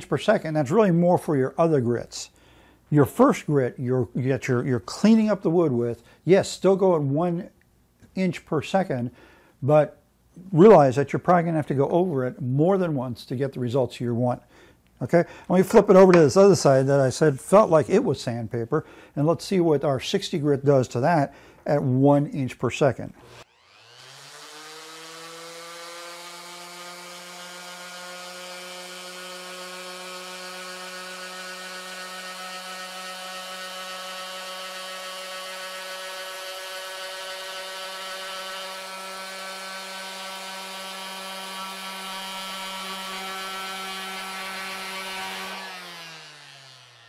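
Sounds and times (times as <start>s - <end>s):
electric sander running: 23.2s - 47.0s.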